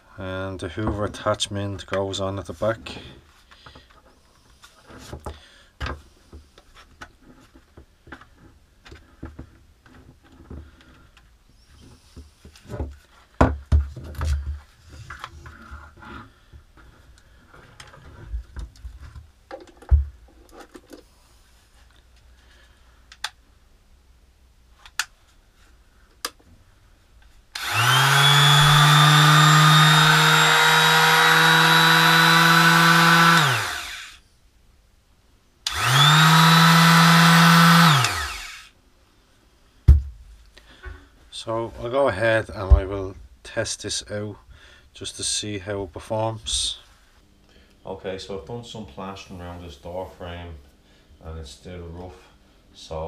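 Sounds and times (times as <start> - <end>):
electric sander motor whine: 27.6 - 34.2, 35.7 - 38.7.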